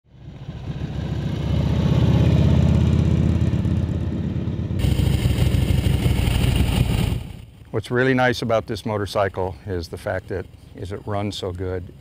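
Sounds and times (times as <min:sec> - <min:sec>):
motorcycle engine riding past: 0:00.1 - 0:07.5.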